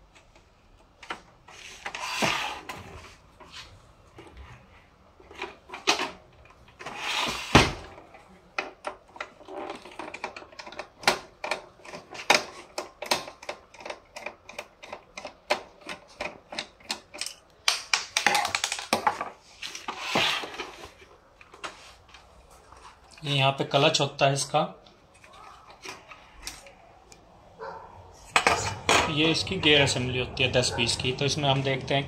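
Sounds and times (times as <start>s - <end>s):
plastic parts clicking and knocking: 5.2s - 20.8s.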